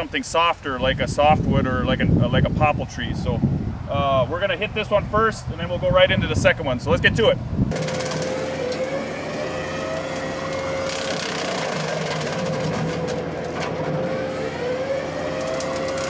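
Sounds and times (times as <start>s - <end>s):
diesel engine under load: 7.4s - 16.0s
hydraulic whine: 7.7s - 16.0s
mower blades chopping branches: 7.7s - 16.0s.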